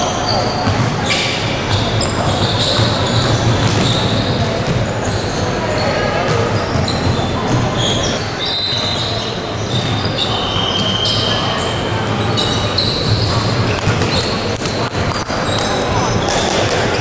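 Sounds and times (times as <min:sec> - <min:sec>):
sneakers squeaking on floor: 0:00.0 - 0:17.0
basketball bouncing: 0:00.6 - 0:01.1, 0:01.7 - 0:05.0, 0:09.7 - 0:12.2.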